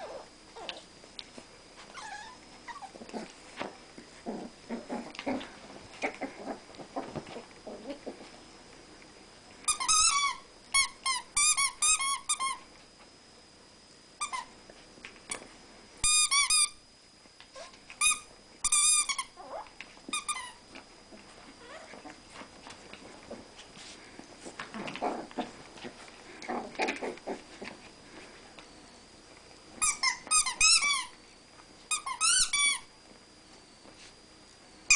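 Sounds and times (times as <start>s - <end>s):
dogs scuffling: 2.8s - 8.4s
squeaky dog toy squeaking: 9.7s - 12.5s, 29.8s - 31.1s, 31.9s - 32.8s.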